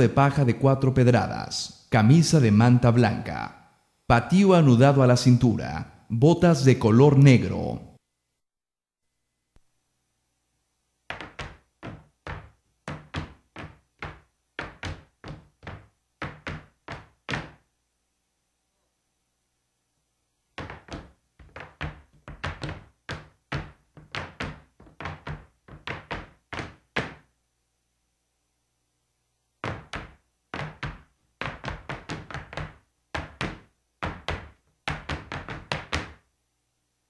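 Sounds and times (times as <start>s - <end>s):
dance shoes stamping on stage: 11.1s - 17.6s, 20.6s - 27.3s, 29.6s - 36.3s.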